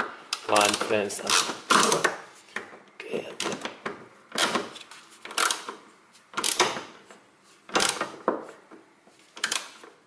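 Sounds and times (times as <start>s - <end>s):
ratcheting torque wrench clicking: 5.3s - 5.8s, 9.4s - 9.8s.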